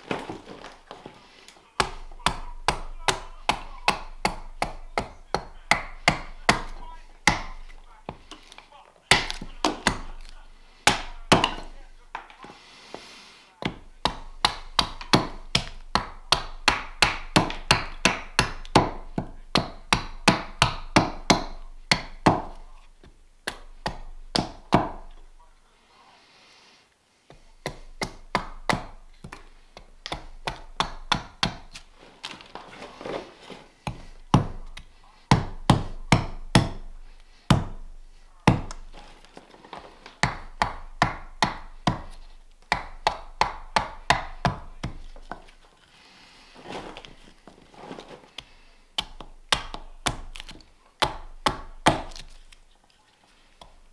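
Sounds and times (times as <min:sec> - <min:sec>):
axe chopping wood: 0:01.8 - 0:12.4, 0:13.6 - 0:22.6, 0:23.4 - 0:25.1, 0:27.3 - 0:31.9, 0:33.8 - 0:37.8, 0:38.4 - 0:45.5, 0:49.0 - 0:52.4.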